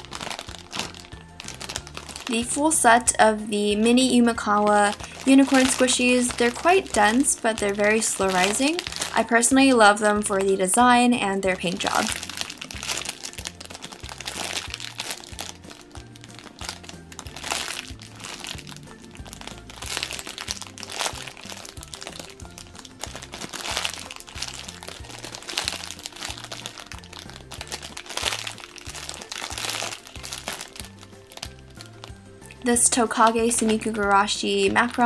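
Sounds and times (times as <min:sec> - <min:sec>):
plastic bags crinkling: 0:00.0 - 0:34.2
background music with bass line: 0:00.0 - 0:35.0.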